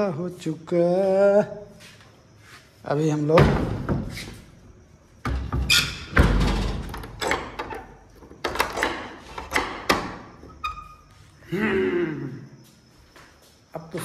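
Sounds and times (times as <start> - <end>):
knocks and metal bolt clacks: 5.2 - 10.6.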